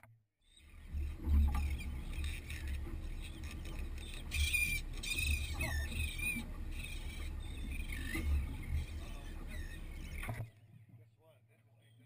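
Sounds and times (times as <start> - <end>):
seabirds squawking: 0.4 - 10.6.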